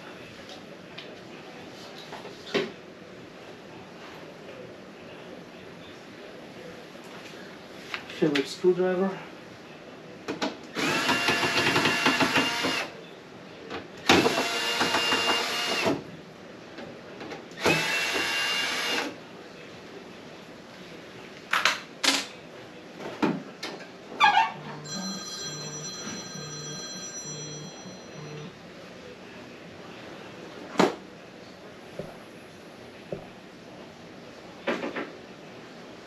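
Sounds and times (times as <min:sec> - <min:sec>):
cordless drill running: 0:10.8 - 0:12.9, 0:14.2 - 0:15.9, 0:17.6 - 0:19.1.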